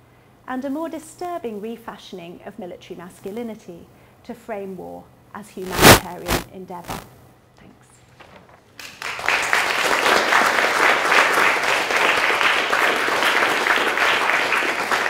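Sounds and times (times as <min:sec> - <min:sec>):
audience applauding: 0:08.8 - 0:15.0.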